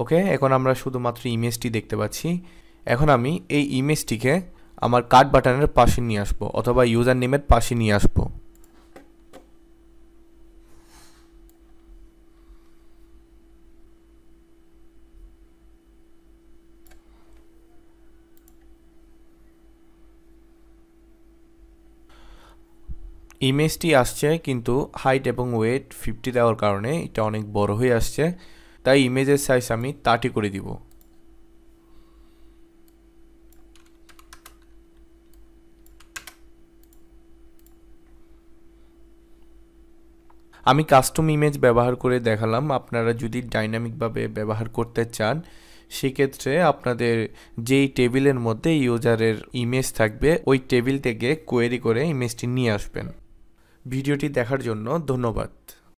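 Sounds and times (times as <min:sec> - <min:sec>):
low electrical hum: 0:00.0 - 0:55.9
computer mouse clicks: 0:16.8 - 0:17.5, 0:18.4 - 0:18.7, 0:30.9 - 0:31.2, 0:32.8 - 0:37.8.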